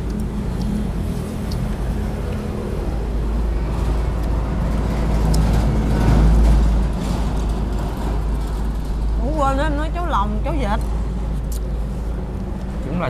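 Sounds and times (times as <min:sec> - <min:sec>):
traffic engine rumble: 0:00.0 - 0:13.0.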